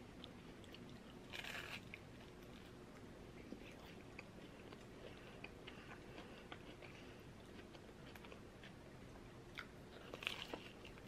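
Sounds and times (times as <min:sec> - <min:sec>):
chewing pastry: 0:00.0 - 0:11.0.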